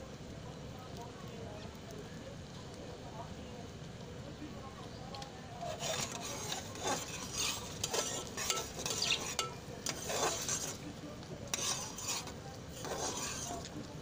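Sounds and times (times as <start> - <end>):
syrup bubbling: 5.5 - 14.0
spoon scraping metal saucepan: 5.7 - 10.8, 11.5 - 13.7.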